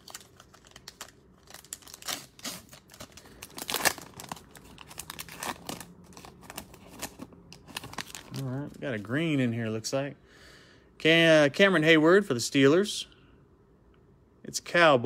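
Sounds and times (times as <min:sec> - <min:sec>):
wrapper crinkling and tearing: 0:00.0 - 0:08.9.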